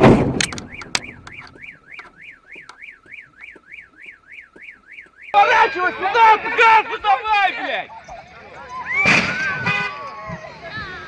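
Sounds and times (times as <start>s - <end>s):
car alarm warbling: 0.4s - 6.4s.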